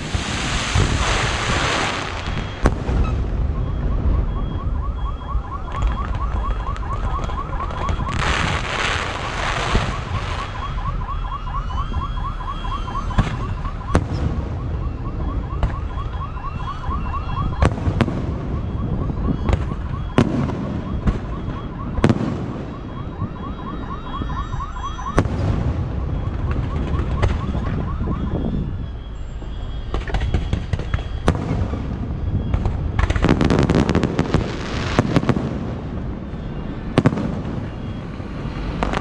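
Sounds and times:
firework bangs: 0:00.0 - 0:04.3, 0:05.7 - 0:10.6, 0:12.9 - 0:15.9, 0:17.4 - 0:23.8, 0:25.2 - 0:28.6, 0:29.8 - 0:39.0
car alarm chirping: 0:00.8 - 0:35.3, 0:35.9 - 0:39.0.

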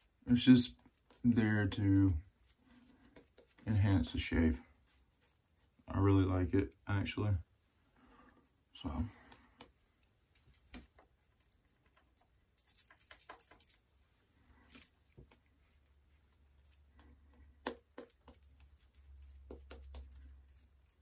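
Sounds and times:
shaving brush swishing lather: 0:01.2 - 0:06.5.

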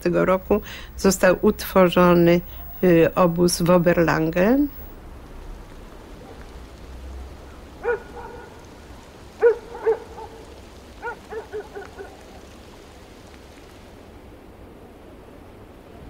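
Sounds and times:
steady hiss: 0:00.0 - 0:14.6
dog barking: 0:07.8 - 0:08.6, 0:09.4 - 0:12.2.

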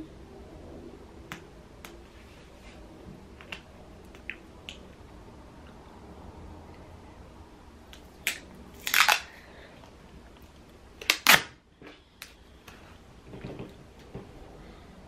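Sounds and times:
tape ripping off roll: 0:08.2 - 0:09.3, 0:11.0 - 0:11.6.

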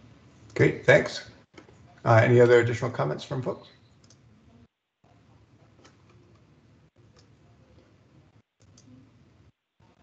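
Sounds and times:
faint clicks: 0:08.6 - 0:08.9.

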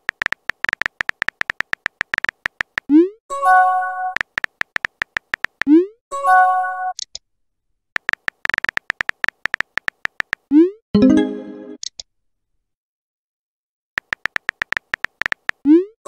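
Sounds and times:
phone keyboard clicks: 0:00.0 - 0:02.9, 0:04.2 - 0:05.7, 0:08.0 - 0:10.5, 0:14.0 - 0:15.6
multi-note message chime: 0:11.0 - 0:11.8.

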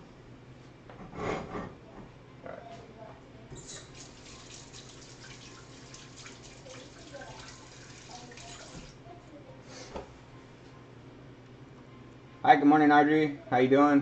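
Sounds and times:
faucet running into sink: 0:03.6 - 0:09.0.

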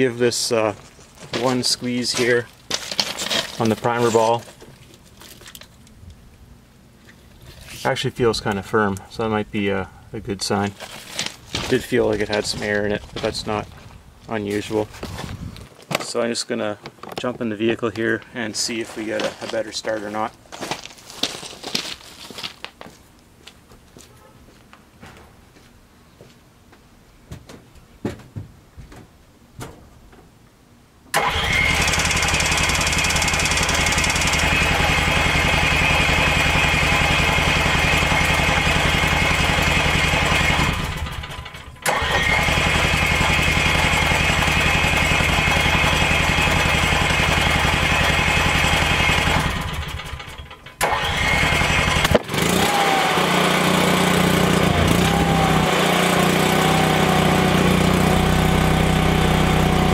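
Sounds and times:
generator running: 0:10.5 - 0:15.4, 0:31.1 - 0:59.9
generator starter cranking: 0:31.1 - 0:59.9.

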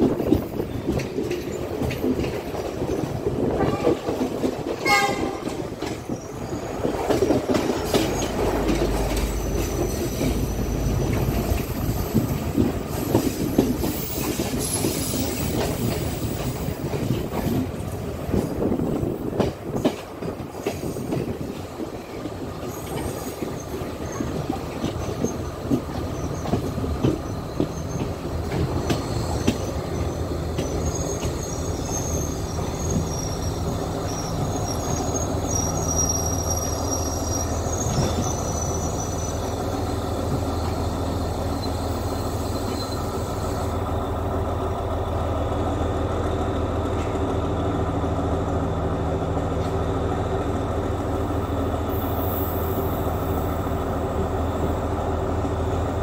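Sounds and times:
train wheels clicking over rail joints: 0:00.0 - 0:43.8
high wheel squeal: 0:28.9 - 0:43.6.

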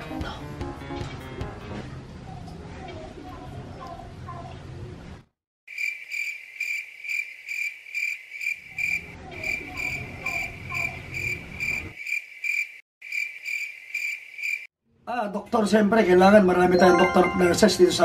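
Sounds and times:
cricket chirping sound effect: 0:05.7 - 0:14.7.

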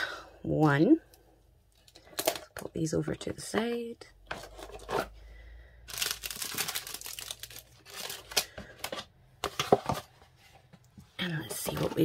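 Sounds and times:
plastic packaging crinkling: 0:05.9 - 0:09.0.

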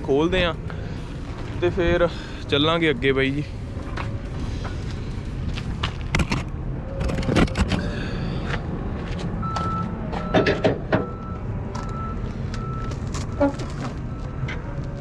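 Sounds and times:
steady low rumble: 0:00.0 - 0:10.3
reversing alarm beeping: 0:09.4 - 0:15.0.

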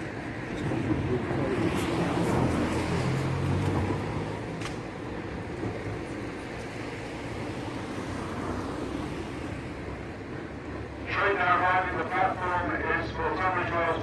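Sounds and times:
engine hum: 0:00.0 - 0:14.0.

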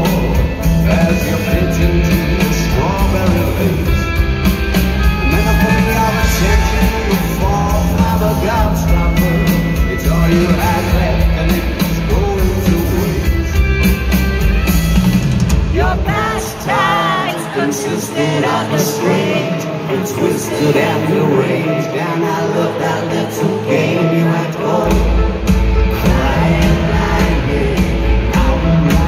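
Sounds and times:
bass guitar: 0:00.0 - 0:17.2, 0:24.8 - 0:29.0
steady drums: 0:00.0 - 0:17.7, 0:24.8 - 0:29.0.

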